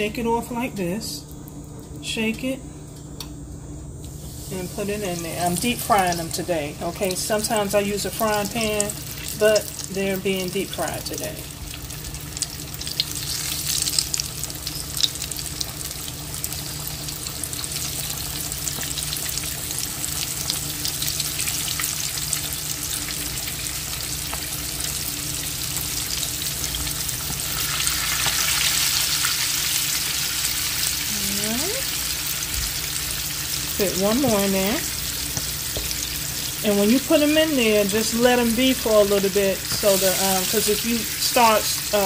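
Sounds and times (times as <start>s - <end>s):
oil bubbling and sizzling: 4.1s - 42.0s
sharp pops of frying oil: 35.2s - 36.1s.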